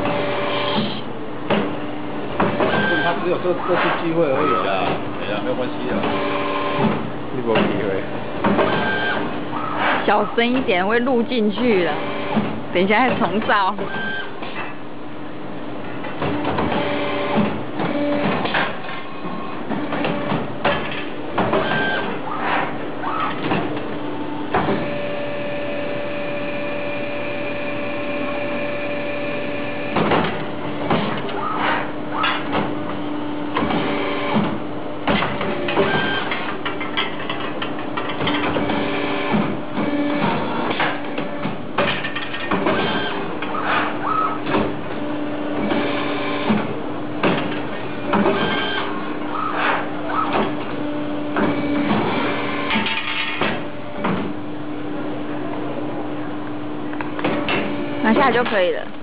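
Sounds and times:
high machine whine: 0.0 - 59.0
machine hum: 0.0 - 59.0.

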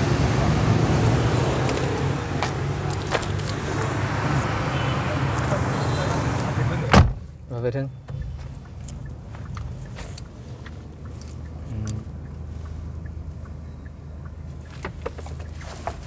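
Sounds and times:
engine and road rumble in cabin: 0.0 - 16.0.

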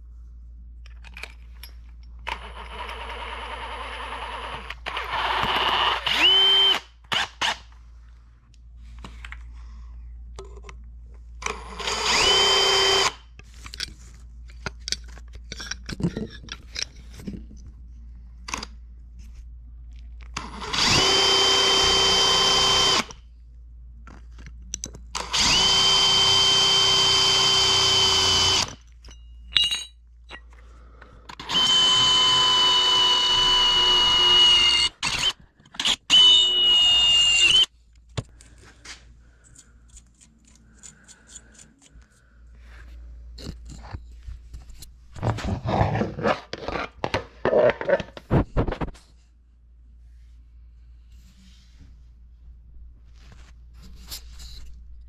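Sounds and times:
electric drill whining: 2.3 - 7.6, 11.5 - 13.2, 20.4 - 23.1, 25.2 - 28.8, 31.4 - 37.7
drill bit through metal plate: 4.9 - 7.6, 11.8 - 13.2, 20.6 - 23.1, 25.2 - 28.8, 31.4 - 37.7
metal handling clatter: 13.5 - 17.6, 29.0 - 30.4.

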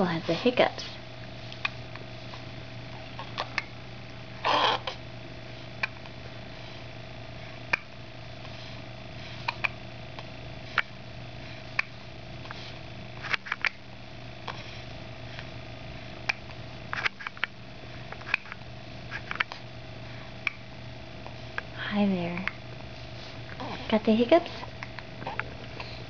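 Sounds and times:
baby hiccuping: 4.4 - 5.0.

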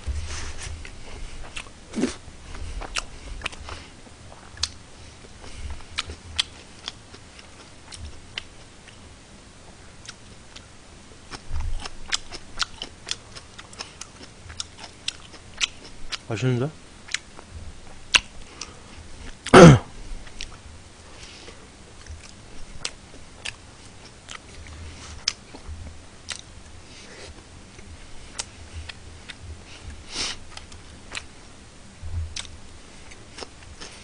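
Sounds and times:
chewing and mouth sounds: 0.8 - 9.0, 10.0 - 10.7, 11.3 - 16.3, 17.1 - 19.5, 20.2 - 20.6, 21.9 - 26.5, 27.2 - 31.3, 32.3 - 34.0
person sniffing: 29.7 - 30.4.

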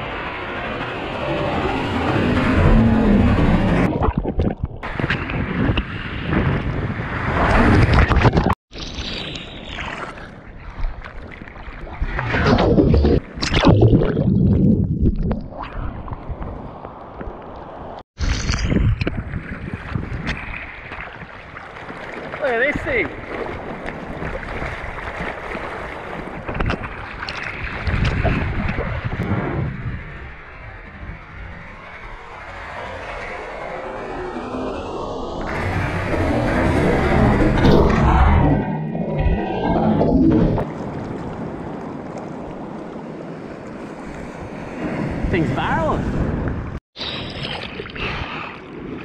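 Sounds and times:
low rumble of water: 0.0 - 49.0
water splashing and sloshing: 1.0 - 29.3, 35.5 - 49.0
wind buffeting microphone: 3.2 - 8.6, 18.6 - 21.4, 23.1 - 32.3.

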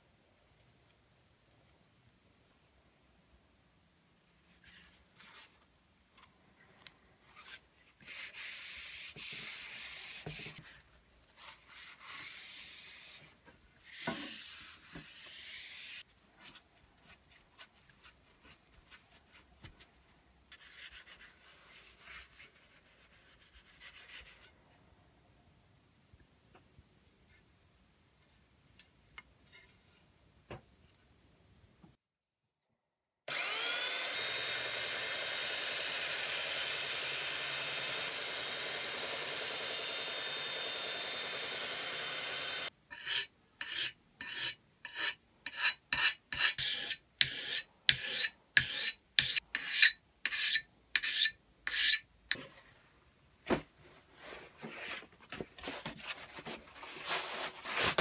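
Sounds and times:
belt sander grinding metal: 33.3 - 43.8.

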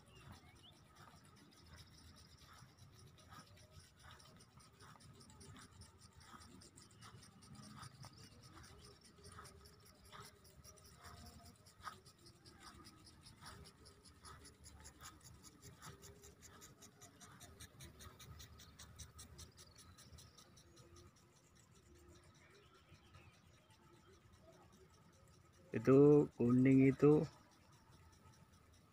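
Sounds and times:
impact sprinkler ticking: 0.0 - 28.9.

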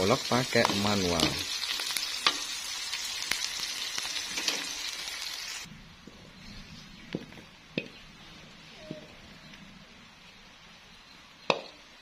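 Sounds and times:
food sizzling in hot oil: 0.0 - 5.7.

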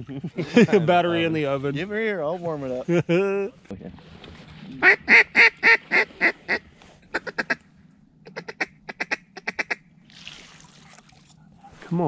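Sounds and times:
duck call quacks: 4.8 - 7.6, 8.2 - 9.8.

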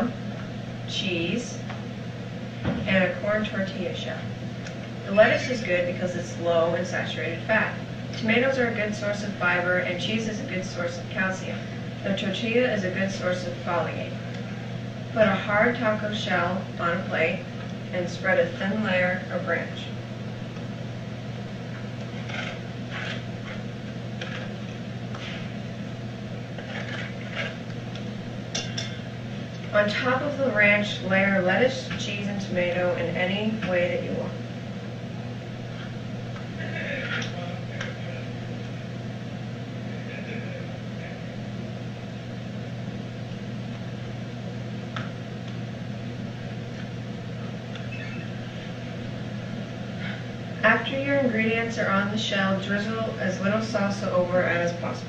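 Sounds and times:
steady low hum: 0.0 - 55.0
utensil scraping taco shell: 22.0 - 24.6, 26.6 - 27.6.

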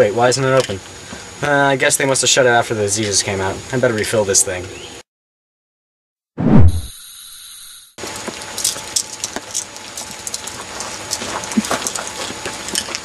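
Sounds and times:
rustling and clicking of handling: 8.1 - 13.0.

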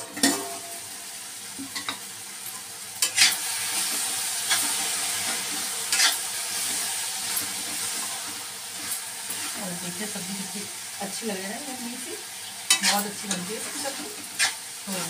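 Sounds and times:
spatula scraping and clanking on pan: 0.0 - 0.9, 1.6 - 9.6, 12.5 - 15.0
vegetables sizzling in oil: 0.0 - 15.0.

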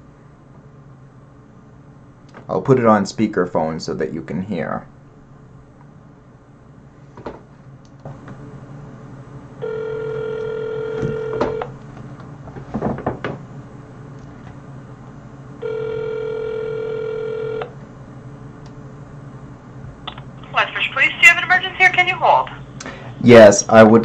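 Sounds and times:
telephone ringback tone: 9.6 - 11.7, 15.6 - 17.7.

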